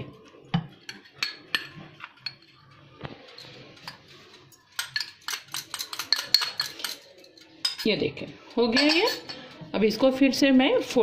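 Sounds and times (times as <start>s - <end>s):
utensils clinking against glass bowls: 0.8s - 9.6s.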